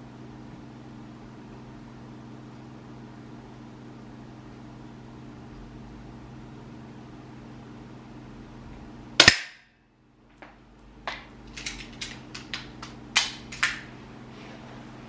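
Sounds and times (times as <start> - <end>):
low room hum: 0.0 - 15.0
airsoft pistol shot: 9.2 - 9.7
small clicks and knocks: 10.3 - 13.8.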